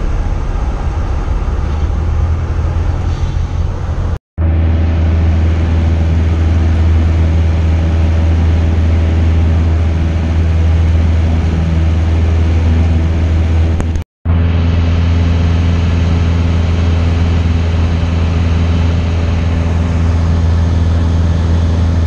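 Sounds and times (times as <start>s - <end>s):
airplane engine droning: 0.0s - 22.0s.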